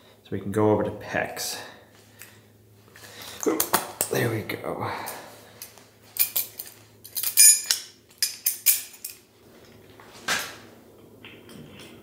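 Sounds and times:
metal fittings clinking: 5.6s - 9.2s.

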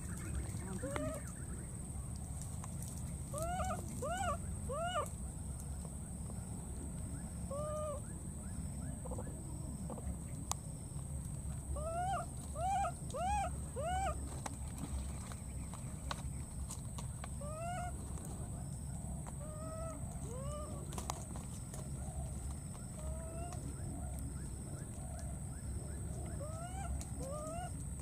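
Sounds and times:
baby monkey crying: 3.3s - 5.1s, 11.8s - 14.2s, 19.4s - 20.9s, 26.4s - 27.8s.

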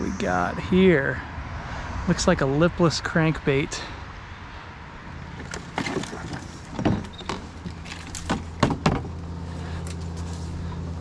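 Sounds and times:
steady low motor hum: 4.5s - 11.0s
knocks and clunks of gear: 5.4s - 9.2s.

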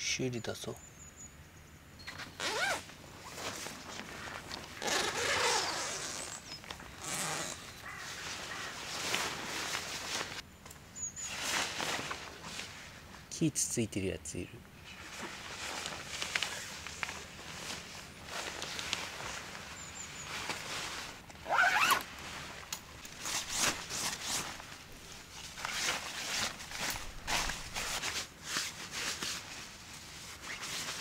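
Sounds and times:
brief squeak: 2.0s - 2.8s
cloth rubbing tent fabric: 2.4s - 10.4s, 11.2s - 13.0s, 14.9s - 31.0s.

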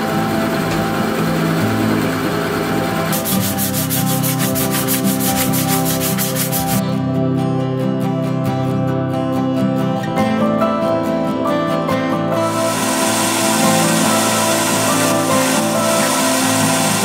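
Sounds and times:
sandpaper rubbing on wood: 3.1s - 6.8s, 12.5s - 17.0s
drill boring into wood: 12.4s - 17.0s.

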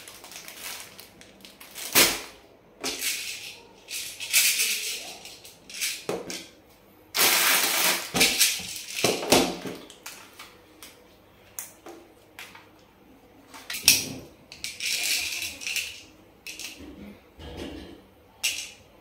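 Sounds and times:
plastic bags crinkling and rattling: 0.0s - 6.3s, 7.2s - 10.5s.

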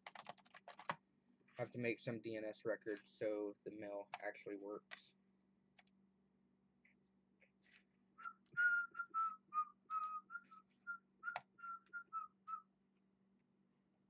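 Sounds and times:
person whistling a tune: 8.2s - 12.6s.

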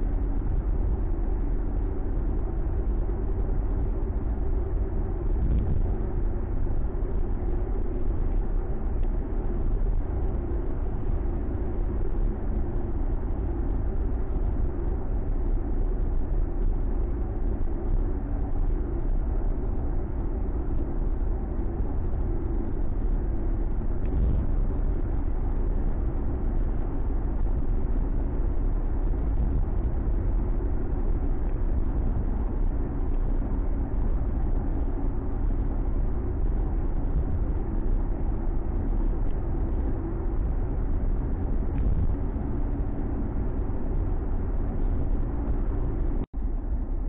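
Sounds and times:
faint engine hum: 0.0s - 47.0s
road noise inside car: 0.0s - 47.0s.

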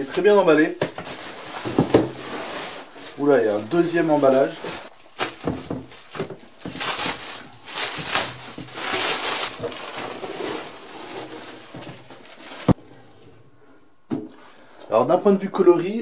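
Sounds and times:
plastic wrap tearing and crinkling: 0.0s - 12.8s.

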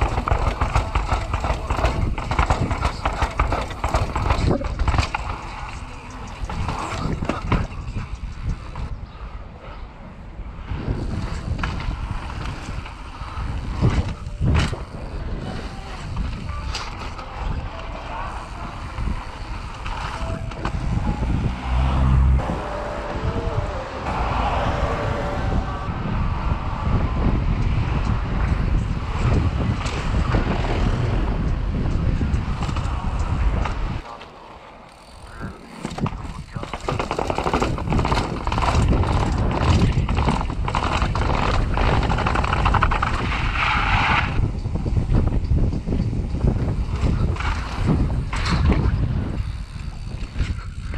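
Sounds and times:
bike clattering down concrete steps: 0.0s - 8.8s, 34.8s - 43.4s
wind buffeting microphone: 0.0s - 34.1s, 34.9s - 50.9s
bike tyre rumble on asphalt: 0.0s - 50.9s.

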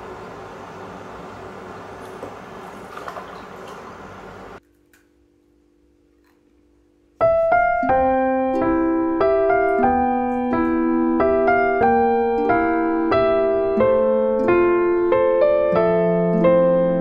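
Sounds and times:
gentle piano melody: 7.1s - 17.0s.

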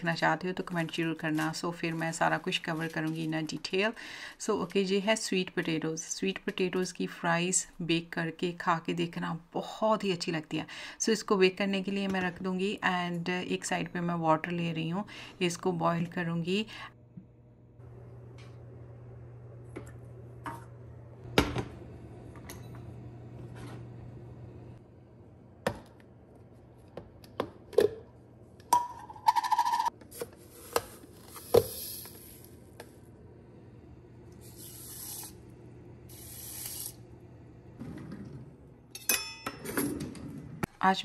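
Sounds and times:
short hissing bursts: 34.4s - 35.4s, 36.1s - 37.0s
pots and utensils clinking: 38.9s - 40.1s.

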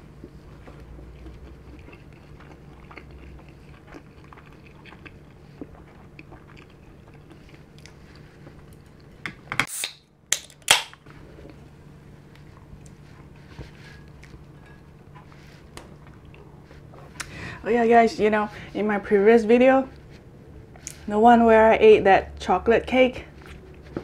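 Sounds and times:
wet chewing: 0.1s - 9.2s.

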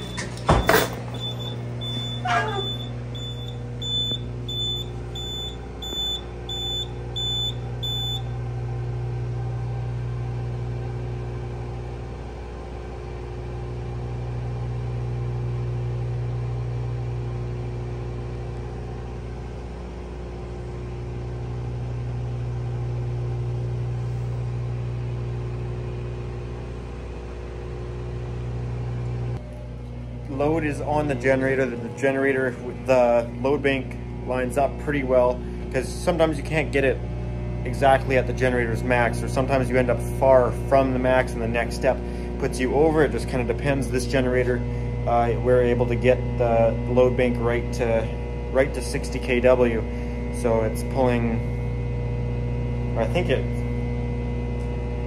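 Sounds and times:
alarm panel beeping: 0.0s - 8.4s
low electrical hum: 0.0s - 11.0s, 18.5s - 55.0s.

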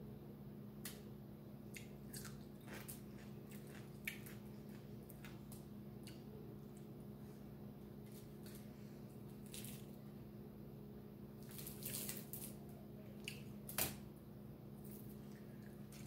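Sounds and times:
steady low hum: 0.0s - 16.0s
wet chewing sounds: 1.7s - 6.9s.

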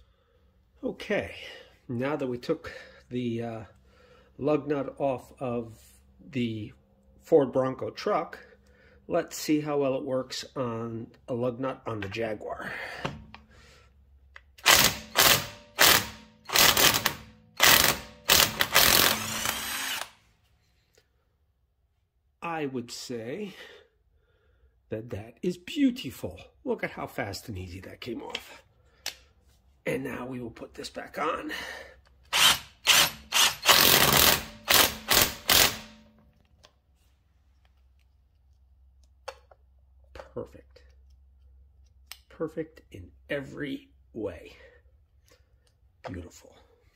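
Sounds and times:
impact wrench hammering: 14.6s - 20.1s, 32.4s - 36.1s.

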